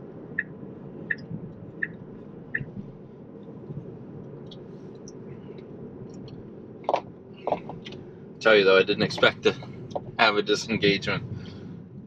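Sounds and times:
tyre and road noise: 0.0 - 12.0
turn signal ticking: 0.1 - 8.1, 8.9 - 10.3.

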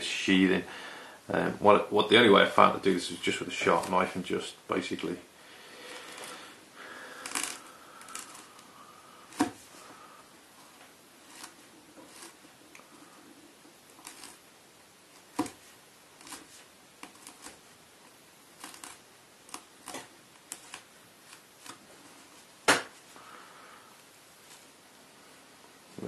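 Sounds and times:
knife scraping fabric cord: 7.2 - 8.6, 11.2 - 12.8, 13.9 - 14.5, 15.1 - 17.6, 18.5 - 22.5.

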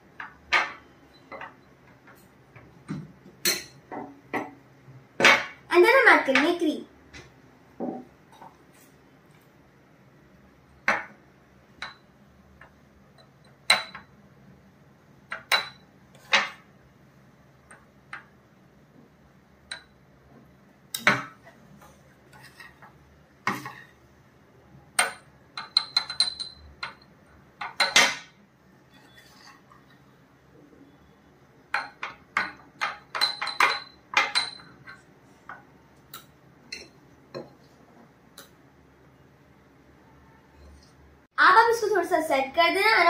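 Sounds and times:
metal spoon clinking on glass: 25.0 - 27.1, 31.8 - 35.0.

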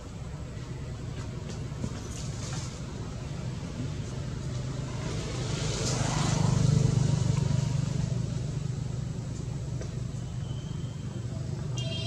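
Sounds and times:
vehicle engine passing: 4.4 - 9.3.

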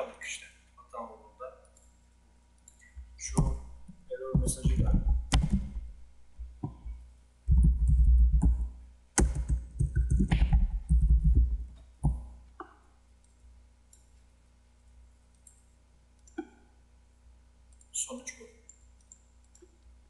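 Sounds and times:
typing on computer keyboard: 9.2 - 11.6.

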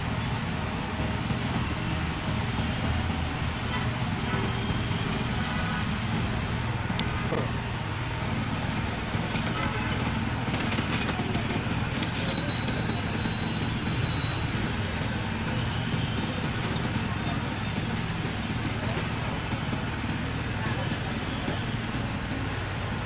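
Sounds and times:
road traffic rumble: 0.0 - 23.0
faint voices: 7.4 - 23.0.

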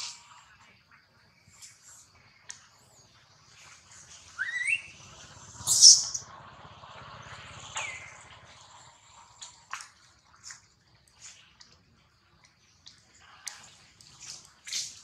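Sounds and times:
high-pitched animal calls: 4.4 - 4.9.

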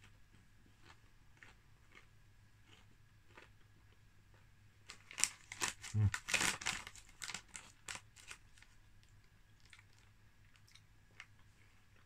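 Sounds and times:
crisp packet crinkling: 4.9 - 8.8
low hum of voice: 5.9 - 6.2.

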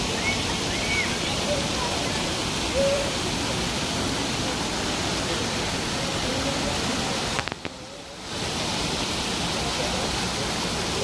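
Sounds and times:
faint voices of people: 0.0 - 3.3, 3.9 - 8.3
fountain jets splashing into pool: 0.0 - 11.0.

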